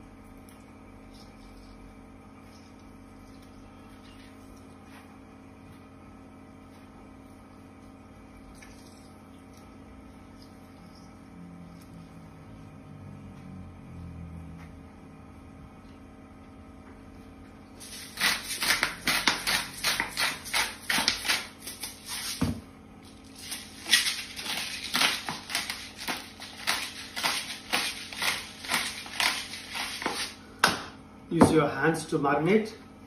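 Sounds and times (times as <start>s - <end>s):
spice mill grinding: 17.8s - 22.4s, 23.0s - 30.4s.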